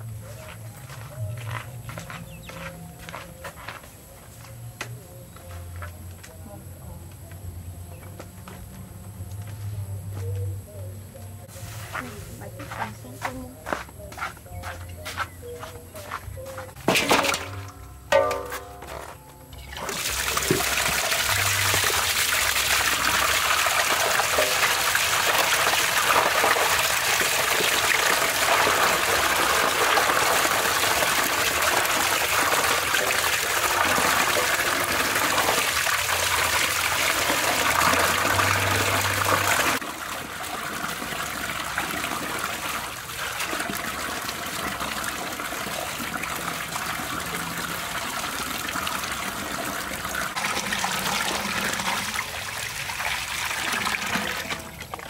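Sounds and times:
water running into a metal basin: 0:16.8 - 0:55.0.

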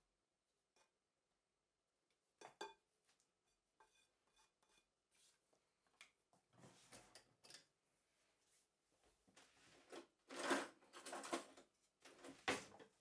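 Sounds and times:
kitchen items clattering: 0:09.8 - 0:12.9.

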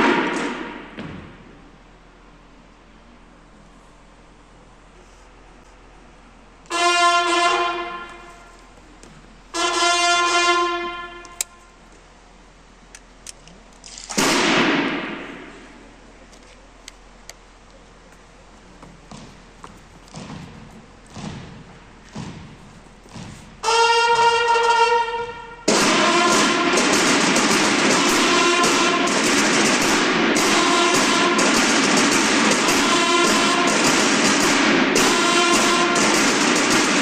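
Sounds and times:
bugles sounding long notes: 0:06.6 - 0:08.9, 0:09.5 - 0:11.8, 0:23.6 - 0:37.0
cymbal crash ringing: 0:25.6 - 0:37.0.

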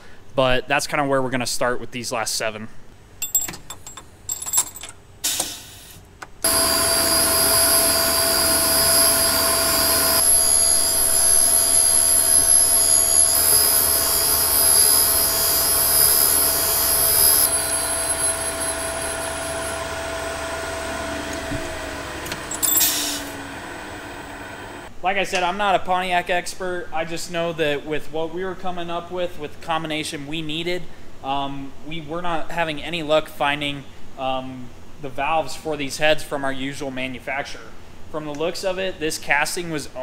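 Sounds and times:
grinder whining: 0:06.4 - 0:24.9.

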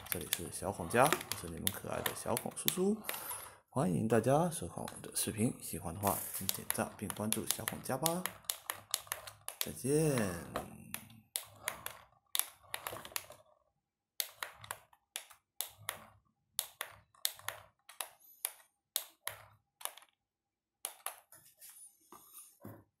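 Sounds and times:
sharp clicks and taps: 0:00.0 - 0:03.5, 0:06.0 - 0:13.4, 0:14.2 - 0:20.1.

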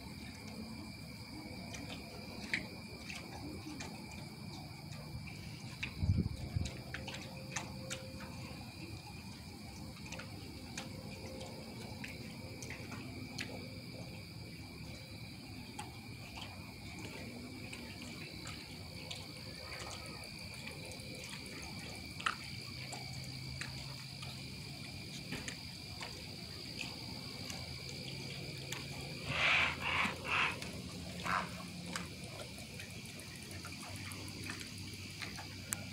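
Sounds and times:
insects trilling: 0:00.0 - 0:35.9
harsh animal calls: 0:29.2 - 0:31.7.

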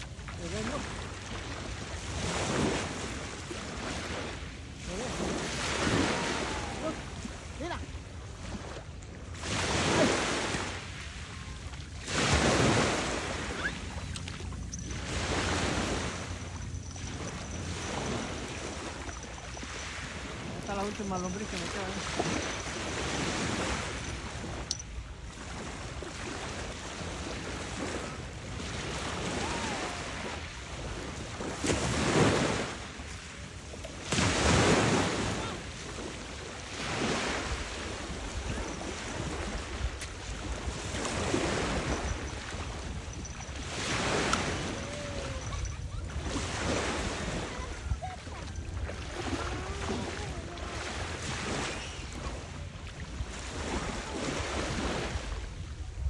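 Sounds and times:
waves washing up a pebble beach: 0:09.2 - 0:24.8, 0:25.4 - 0:52.6.

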